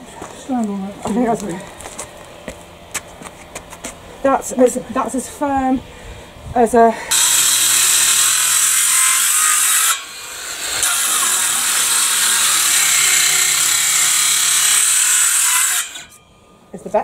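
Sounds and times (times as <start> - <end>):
circular saw cutting wood: 7.1 - 16.2.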